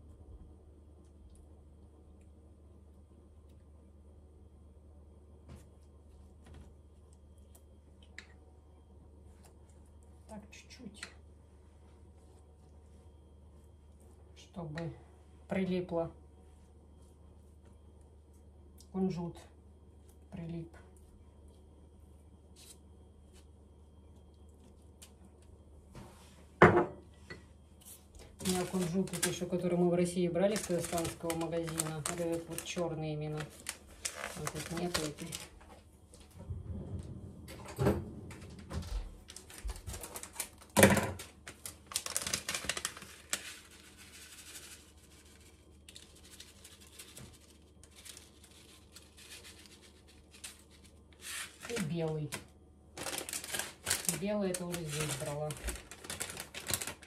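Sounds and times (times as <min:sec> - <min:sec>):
low room hum: 0:00.0 - 0:57.0
plastic packet crinkling: 0:28.2 - 0:35.7, 0:39.2 - 0:57.0
seeds ticking onto paper: 0:30.4 - 0:35.5, 0:41.4 - 0:50.9, 0:53.0 - 0:57.0.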